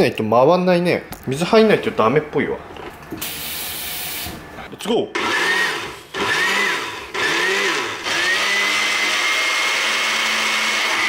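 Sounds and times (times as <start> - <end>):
blender motor running: 5.2 - 11.0.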